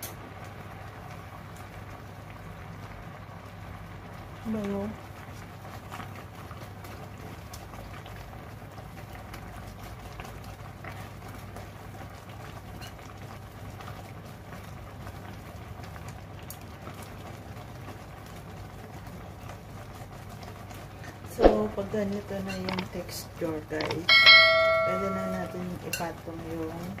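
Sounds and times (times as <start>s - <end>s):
broth bubbling in a pot: 0.0s - 27.0s
steady low hum: 21.3s - 25.8s.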